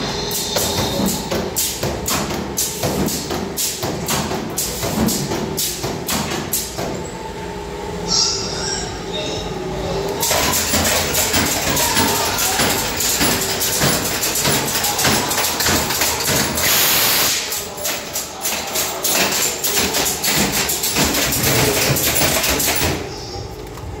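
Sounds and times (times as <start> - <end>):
clatter of knocks and rattles: 10.2 - 16.8, 17.5 - 23.1.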